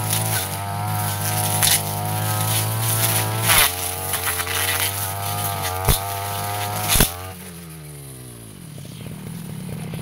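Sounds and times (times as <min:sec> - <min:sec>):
blade knocking woody stems: 0:00.0 - 0:07.4
brush cutter engine: 0:00.0 - 0:10.0.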